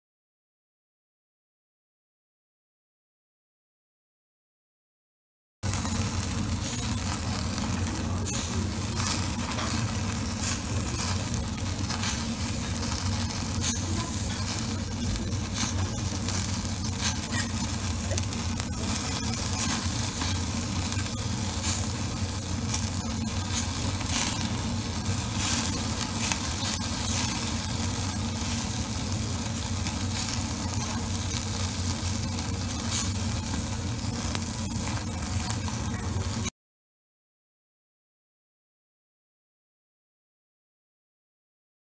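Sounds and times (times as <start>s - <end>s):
meat sizzling on grill: 5.6s - 36.5s
small crackles and pops: 5.6s - 36.5s
steady low hum: 5.6s - 36.5s.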